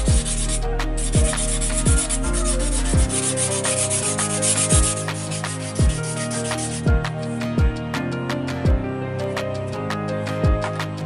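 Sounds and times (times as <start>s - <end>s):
sandpaper rubbing styrofoam: 0.0s - 6.9s
music with bass drum beat: 0.0s - 8.9s, 9.5s - 11.0s.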